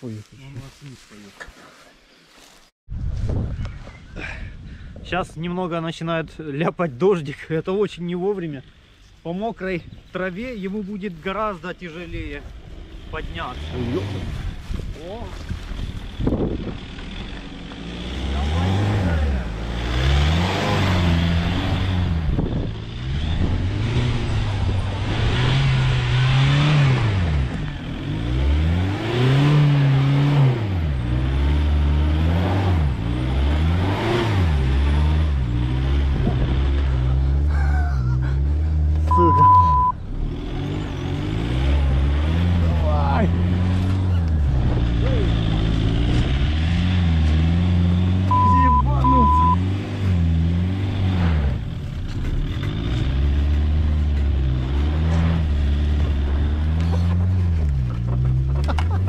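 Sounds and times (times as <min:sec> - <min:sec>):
car engine revving: 0:15.8 - 0:59.0.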